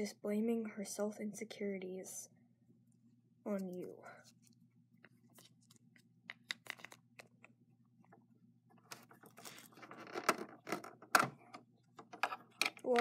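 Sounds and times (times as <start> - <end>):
low steady hum: 0.0 - 13.0
plastic rustling and scraping: 8.8 - 11.0.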